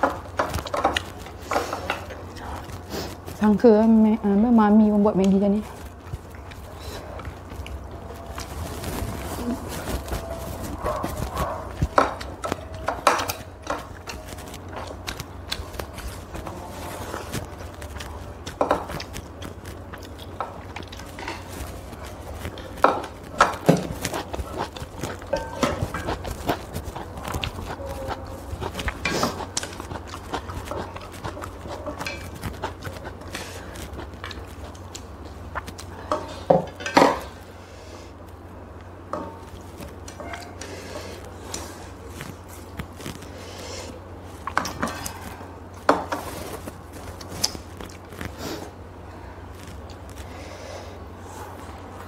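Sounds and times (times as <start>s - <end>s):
low steady hum: 0.0s - 52.0s
noodles slurped and chewed: 5.3s - 36.5s
chopsticks clicking against plates: 11.1s - 16.5s.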